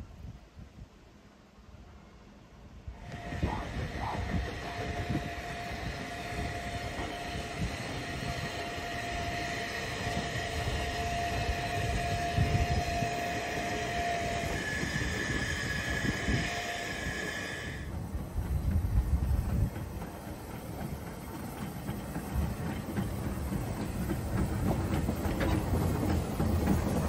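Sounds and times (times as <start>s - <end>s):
steam train rumble: 0.0s - 27.0s
high squeal: 5.1s - 17.9s.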